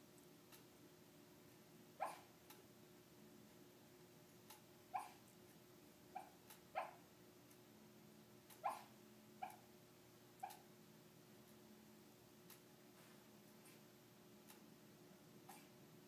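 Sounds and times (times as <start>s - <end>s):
dog sleep-barking faintly: 2.0s - 2.4s, 4.9s - 5.3s, 8.5s - 9.7s, 10.4s - 10.7s, 15.4s - 15.8s.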